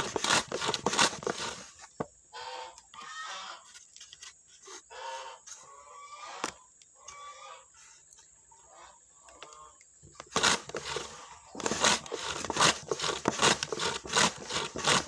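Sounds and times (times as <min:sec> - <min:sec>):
hand slicer rasping strokes: 0:00.0 - 0:01.8, 0:10.2 - 0:15.0.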